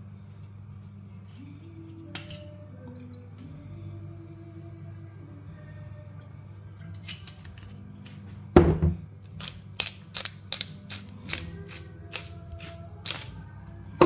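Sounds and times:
spice grinder crunching: 9.3 - 13.4.

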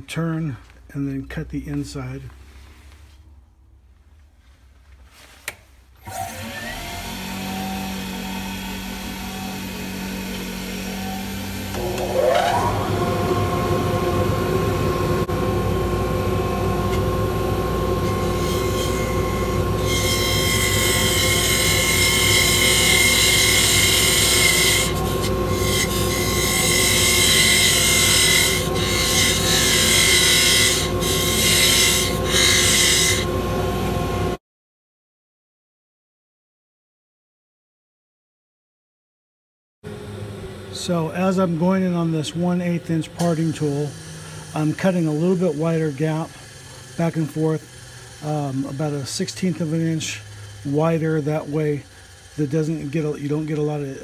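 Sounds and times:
parting tool cutting wood: 6.0 - 14.3, 18.0 - 33.3, 40.9 - 54.0
wood lathe humming: 6.0 - 34.4, 39.9 - 54.0.

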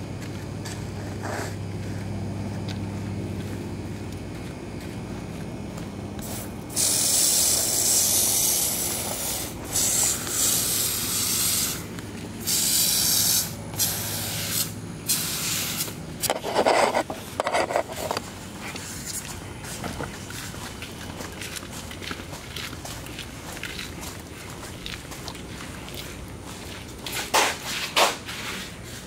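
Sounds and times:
footsteps: 0.0 - 6.8, 15.9 - 29.0
motor humming: 0.0 - 27.1
pressure washer spraying water: 6.2 - 16.0.

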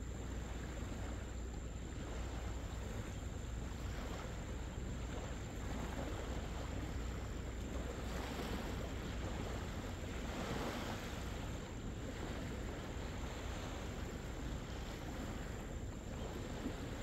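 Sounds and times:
surf washing: 0.0 - 17.0
wind rumbling on microphone: 0.0 - 17.0.

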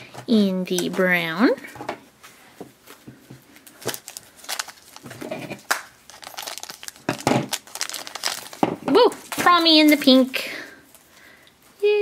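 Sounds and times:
plastic bag crinkling: 3.6 - 11.1.

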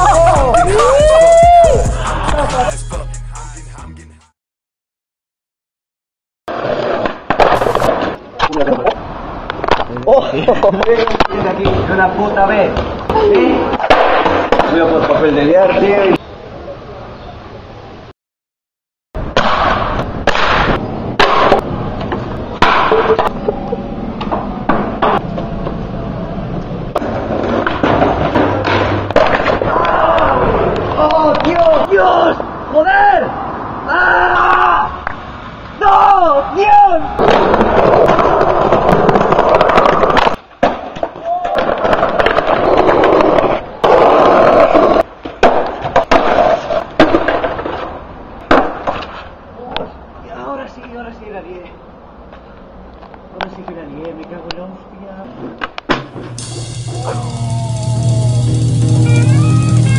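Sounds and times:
skateboards clacking on stone paving: 6.5 - 16.2, 26.9 - 31.9, 37.2 - 49.9
skateboard tail popping clacks: 37.2 - 49.2.

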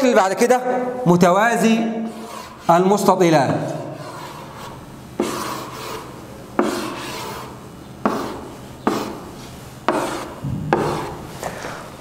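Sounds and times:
pen rubbing on whiteboard: 1.9 - 2.9, 3.9 - 11.4.

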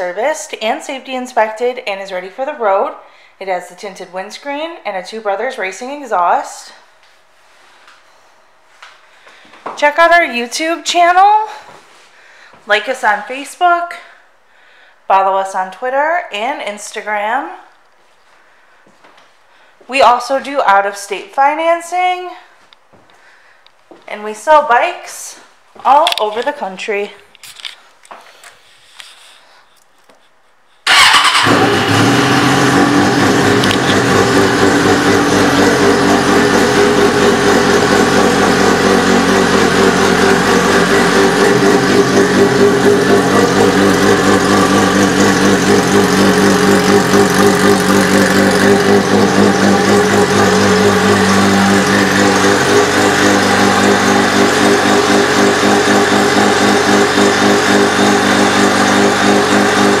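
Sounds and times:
motorcycle engine starting and idling: 30.8 - 60.0.

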